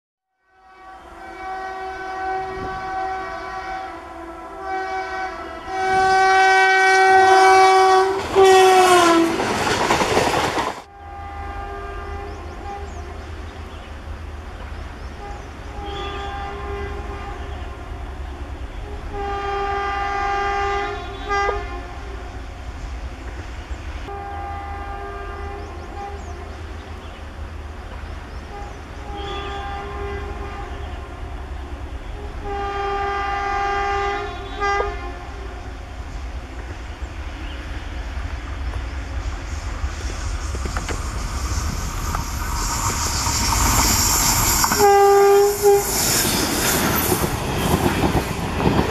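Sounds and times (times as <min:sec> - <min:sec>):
train horn blasts: 0:00.3 - 0:09.6, 0:10.8 - 0:13.6, 0:15.1 - 0:22.6, 0:24.0 - 0:26.7, 0:28.4 - 0:36.6, 0:41.6 - 0:47.8
rush of passing train: 0:00.4 - 0:48.9.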